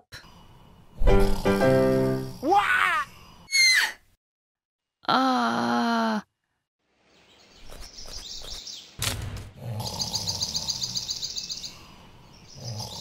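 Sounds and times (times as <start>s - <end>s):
birds chirping: 7.0s - 13.0s
fast bird trill: 7.6s - 8.8s.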